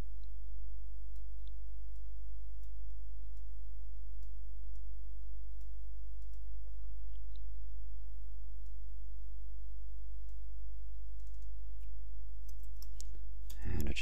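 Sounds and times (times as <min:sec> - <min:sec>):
computer mouse clicks: 0:05.6 - 0:06.5, 0:11.2 - 0:13.9.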